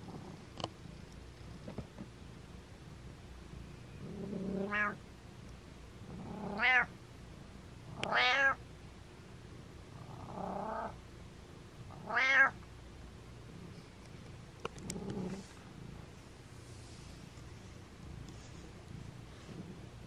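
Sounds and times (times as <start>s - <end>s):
cat meowing: 4.6s - 5.0s, 6.6s - 6.9s, 8.1s - 8.6s, 12.0s - 12.6s.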